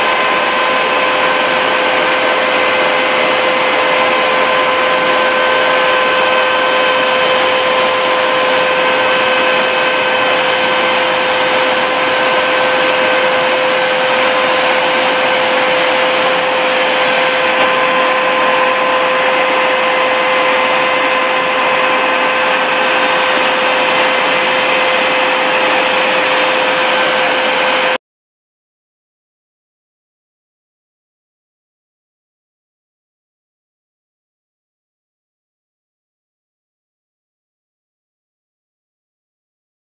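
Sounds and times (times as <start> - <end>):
cutting machine whining: 0.0 - 28.0.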